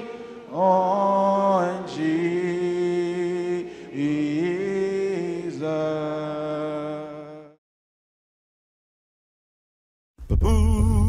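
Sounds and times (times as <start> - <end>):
congregation singing a hymn: 0.0 - 6.8.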